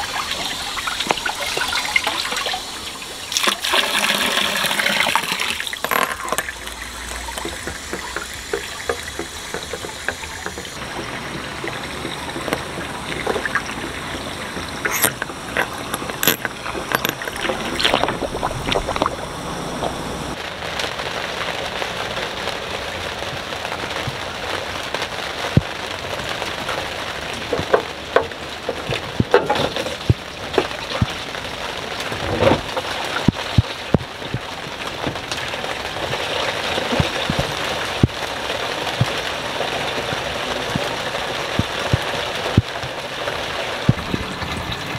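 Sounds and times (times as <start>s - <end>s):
water rushing from a hose: 0.0s - 44.9s
knocks and clunks of handling: 27.5s - 30.7s.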